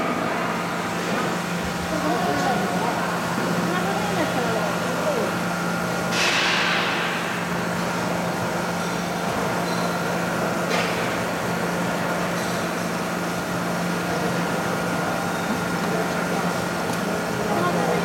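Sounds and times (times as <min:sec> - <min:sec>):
dough mixer motor hum: 0:00.8 - 0:06.1.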